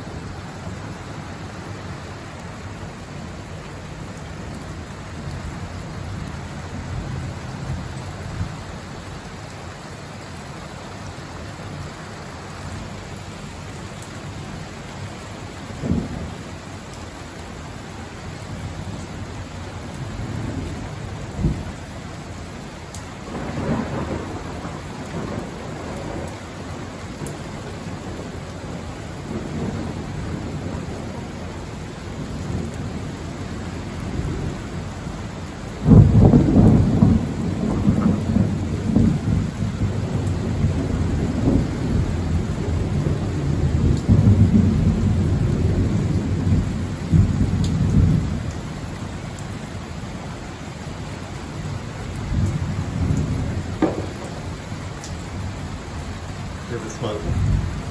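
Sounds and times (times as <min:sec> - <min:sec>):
steady rain: 0:00.0 - 0:57.9
thunder rumbling: 0:23.2 - 0:31.1, 0:35.8 - 0:48.5, 0:52.3 - 0:57.9
loud thunder clap: 0:53.8 - 0:54.5.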